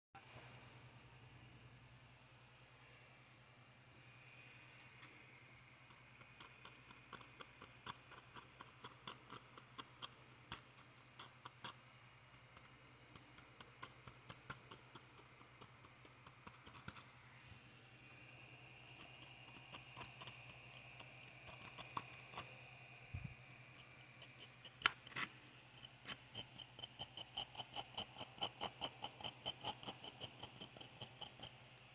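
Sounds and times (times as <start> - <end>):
steady low hum: 0.2 - 31.9
tool clicking and scraping: 23.8 - 31.6.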